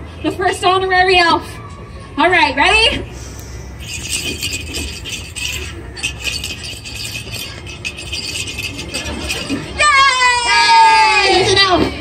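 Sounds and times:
jingle bells shaken: 3.8 - 9.8.

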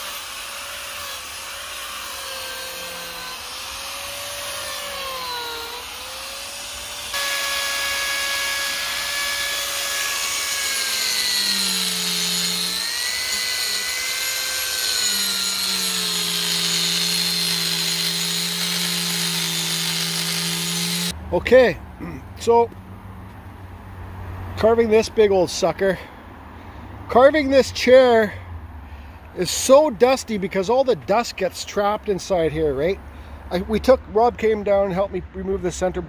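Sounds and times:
angle grinder grinding wood: 0.0 - 21.2.

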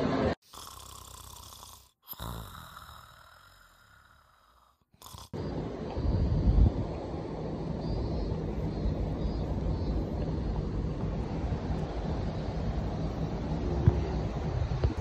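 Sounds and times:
outdoor noise: 0.0 - 15.0
person snoring: 0.4 - 5.4
wind on microphone: 5.4 - 15.0.

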